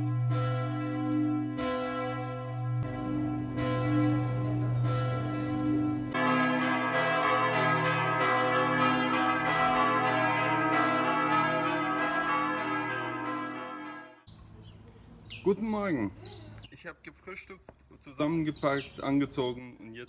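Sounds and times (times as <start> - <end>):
church bells pealing: 0.0 - 14.3.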